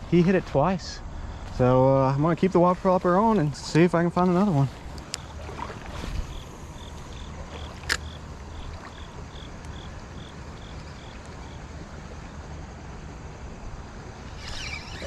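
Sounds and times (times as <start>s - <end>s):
running water: 1.5s - 15.0s
fishing reel click: 14.4s - 15.0s
fishing reel ticking: 14.4s - 15.0s.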